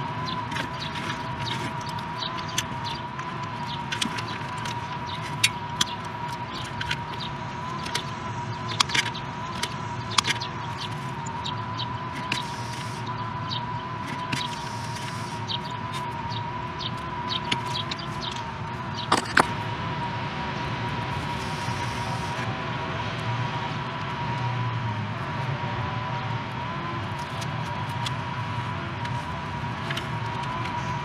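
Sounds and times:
high-pitched whine: 0.0 - 31.0
wire clicking and knocking: 17.3 - 19.5.

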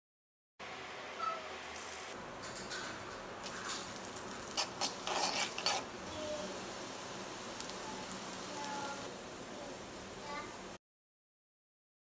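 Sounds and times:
onion sizzling in oil: 0.7 - 2.4, 3.2 - 10.8
utensil scraping metal pan: 2.7 - 5.9.

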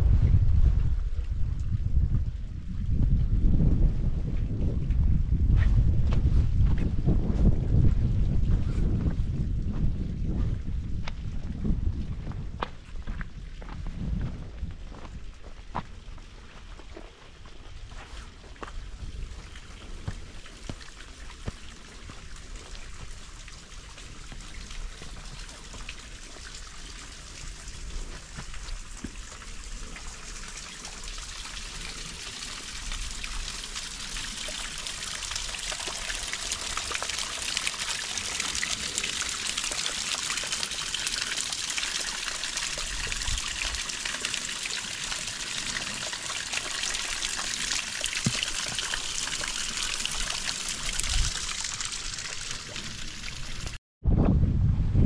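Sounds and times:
water trickling: 13.0 - 53.8.

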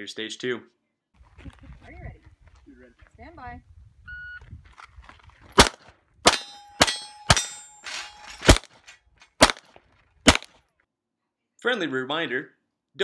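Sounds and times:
pistol shots: 5.6 - 8.8, 9.4 - 10.6
steel targets ringing: 6.3 - 8.6.

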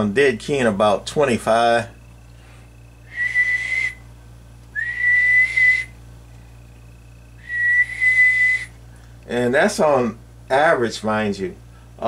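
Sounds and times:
person whistling notes: 3.1 - 4.0, 4.8 - 6.0, 7.4 - 8.7.

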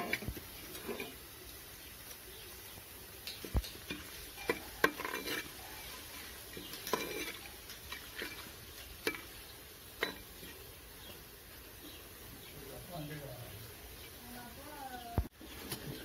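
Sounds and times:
spices sizzling in oil: 0.0 - 16.0
spoon clinking against pot: 3.6 - 5.5, 6.5 - 7.5, 10.0 - 10.3.

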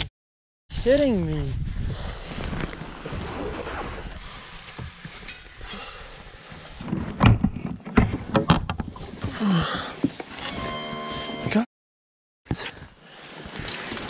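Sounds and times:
rustling in a small boat: 2.1 - 11.4.

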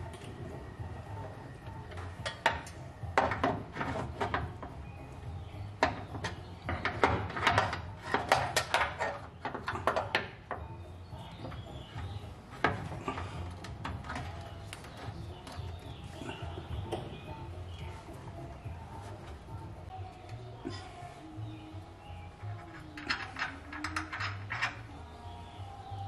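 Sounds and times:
metal cable clinking and rattling: 22.4 - 25.1.

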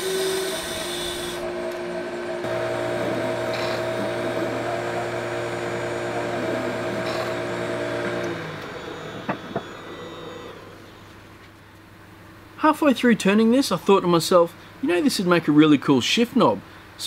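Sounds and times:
lathe motor hum: 0.0 - 11.6.

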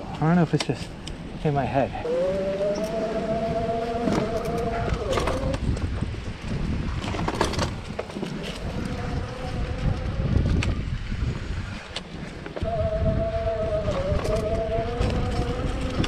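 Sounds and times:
low rumble of riding on dirt: 0.0 - 16.0
electric hub motor whining: 2.0 - 5.9, 8.4 - 16.0.

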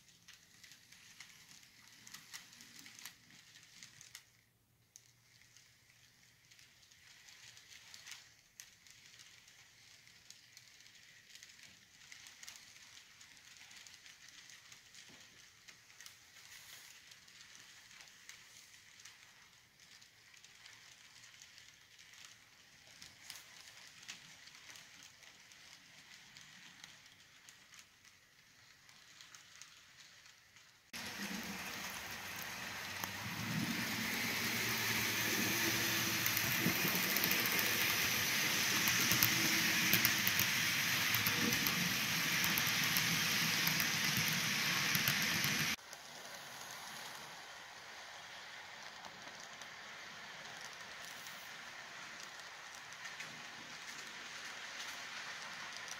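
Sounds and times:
model train wheels clicking: 0.0 - 55.9
train running rumble: 31.0 - 45.8.

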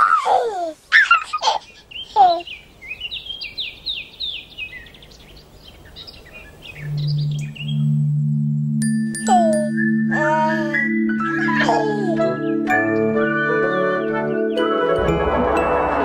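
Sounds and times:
birds calling and chirping: 0.9 - 8.4, 9.2 - 14.8
low musical drone: 6.8 - 16.0.

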